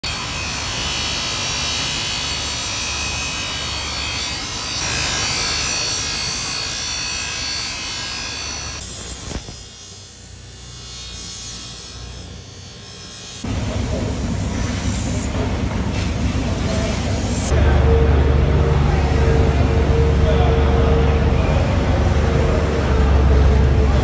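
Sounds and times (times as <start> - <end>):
knife grinding on bench grinder: 0.0 - 13.6.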